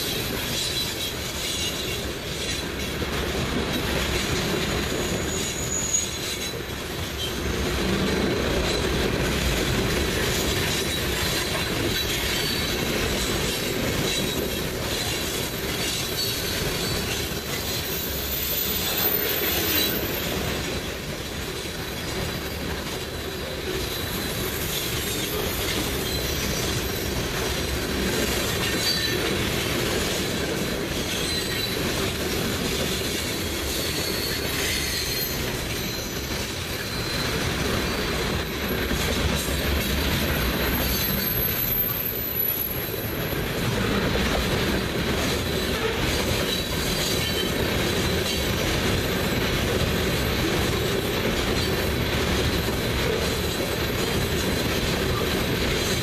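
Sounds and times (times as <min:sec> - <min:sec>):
steel wheels rumbling on rails: 0:00.0 - 0:56.0
high-pitched wheel squeals: 0:04.4 - 0:07.4, 0:10.7 - 0:20.5, 0:23.8 - 0:27.3, 0:30.9 - 0:32.1, 0:33.2 - 0:38.2, 0:39.5 - 0:43.4, 0:45.4 - 0:48.6.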